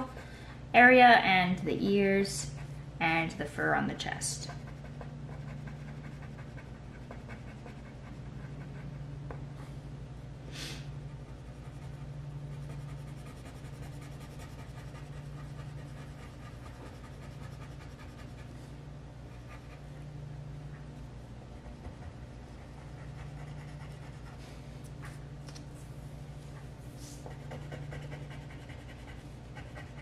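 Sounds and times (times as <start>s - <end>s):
low hum: 0.0s - 30.0s
marker scratching on paper: 4.4s - 9.0s, 11.2s - 18.5s, 27.2s - 30.0s.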